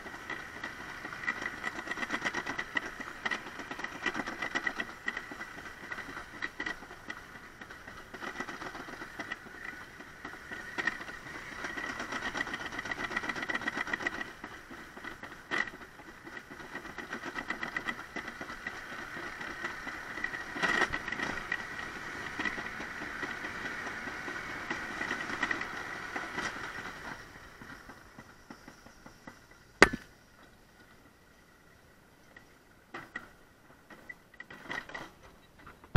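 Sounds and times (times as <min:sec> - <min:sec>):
sled rattling down metal track: 0:00.0 - 0:35.9
sharp knock: 0:29.8 - 0:30.1.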